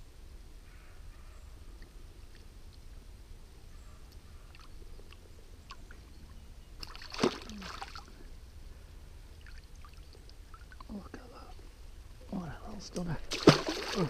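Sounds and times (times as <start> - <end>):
water splash: 6.8 - 8.1, 13.2 - 14.0.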